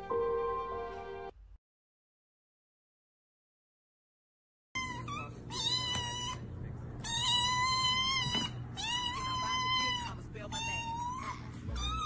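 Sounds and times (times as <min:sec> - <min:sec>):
kittens mewing: 0:04.8 - 0:12.0.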